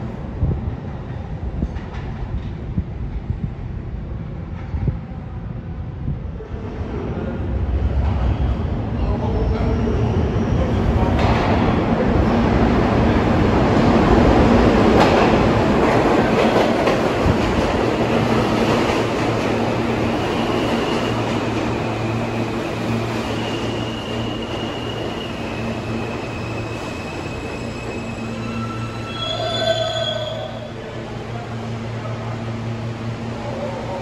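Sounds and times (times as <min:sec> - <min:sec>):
subway train running: 0:00.0 - 0:34.0
high wheel squeal: 0:22.0 - 0:30.7.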